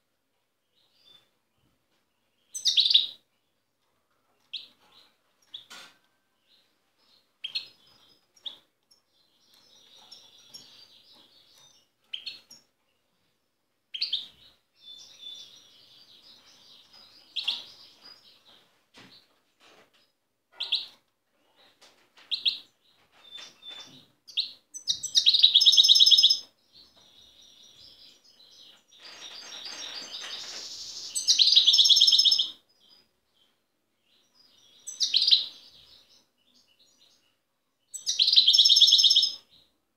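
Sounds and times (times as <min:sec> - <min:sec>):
goldfinch twitters and call notes: 0:22.3 - 0:33.0, 0:34.1 - 0:37.2, 0:37.9 - 0:39.4.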